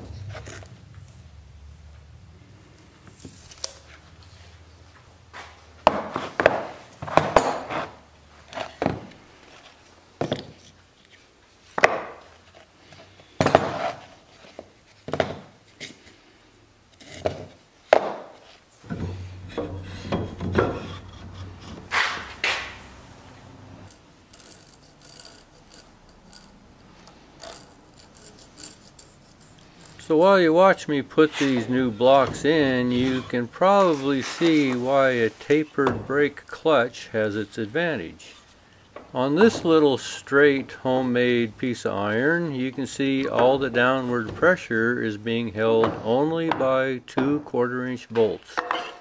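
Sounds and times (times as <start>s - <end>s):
wooden knocks: 18.9s - 22.7s
short scraping rubs: 19.0s - 22.9s, 24.2s - 30.2s.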